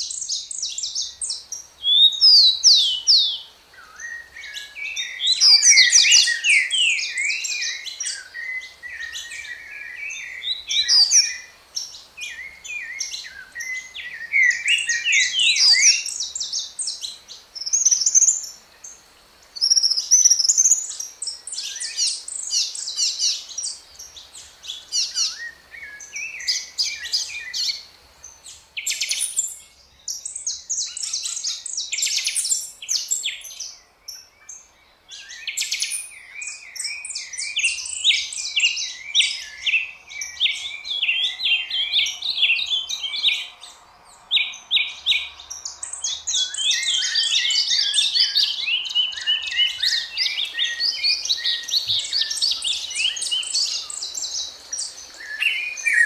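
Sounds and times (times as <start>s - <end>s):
songbirds chirping and trilling: 0.0s - 56.0s.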